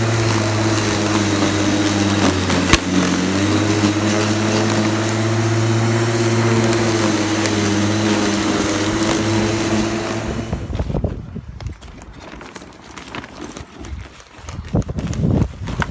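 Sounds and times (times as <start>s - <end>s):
electric lawn mower cutting grass: 0.0s - 11.0s.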